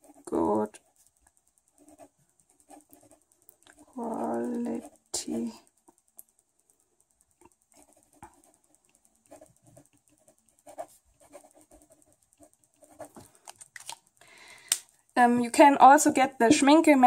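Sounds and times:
pen scratching on paper: 0.0s - 13.6s.

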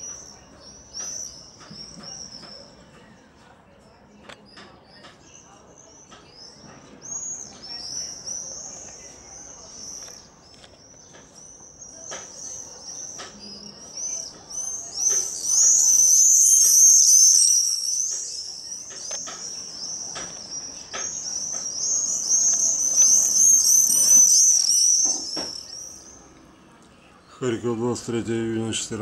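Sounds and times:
birds chirping: 0.0s - 29.0s.

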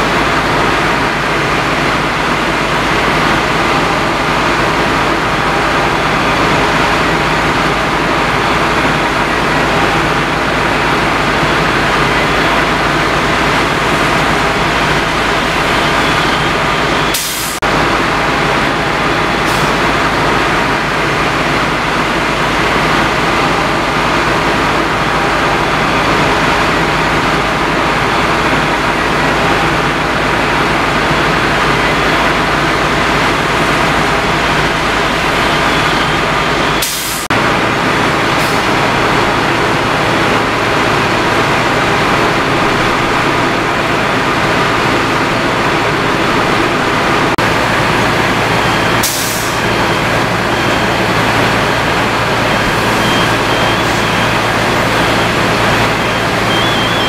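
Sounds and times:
diesel engines rumbling: 0.0s - 57.0s
water hissing from hoses: 49.0s - 50.1s.

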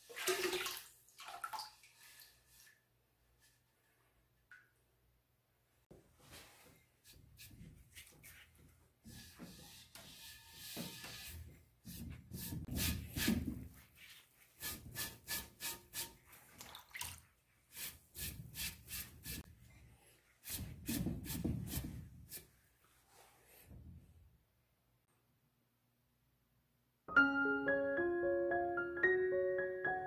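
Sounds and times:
sponge squelching in liquid: 0.0s - 2.9s, 15.5s - 19.5s
sponge wiping clay vase: 1.7s - 2.8s, 6.2s - 16.6s, 17.2s - 19.5s, 20.4s - 23.5s.

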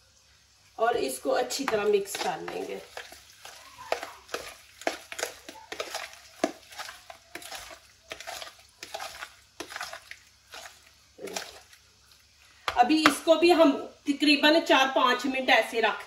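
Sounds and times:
wet meat mixed by hand: 0.9s - 12.8s.

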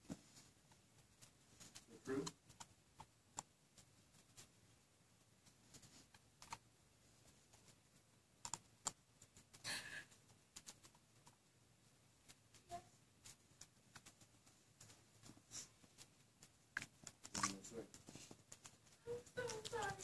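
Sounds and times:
puppy gnawing on toy: 16.4s - 20.0s.

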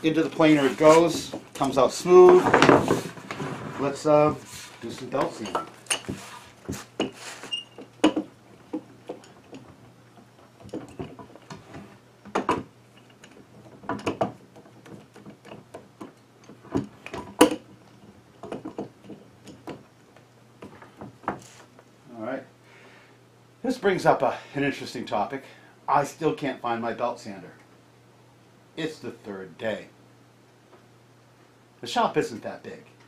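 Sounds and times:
low electrical hum: 0.0s - 33.0s
wooden clamp knocks and clicks: 10.6s - 17.7s.

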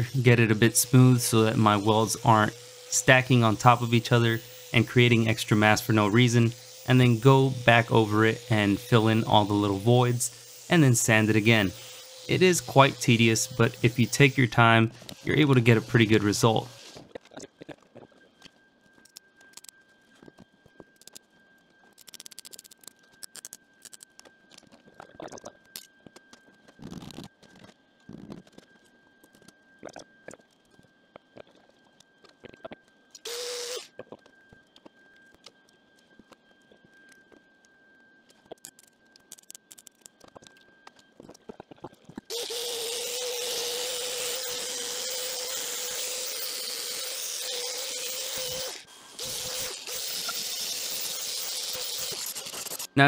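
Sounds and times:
belt sander grinding steel: 0.0s - 17.1s, 33.2s - 34.0s, 42.3s - 53.0s
welding crackling clicks: 22.0s - 29.6s, 38.3s - 42.3s.

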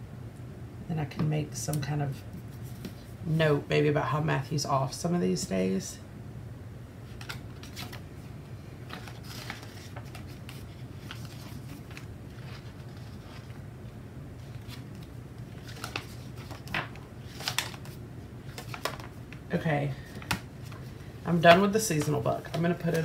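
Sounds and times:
faint low hum: 0.0s - 23.0s
paper pages flipping: 7.1s - 8.0s, 8.9s - 13.6s, 14.4s - 19.4s, 20.0s - 23.0s.

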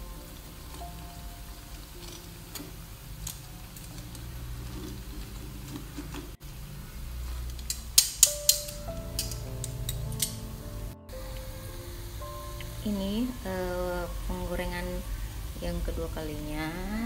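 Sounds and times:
metal tongs clicking against pan: 7.5s - 10.4s.

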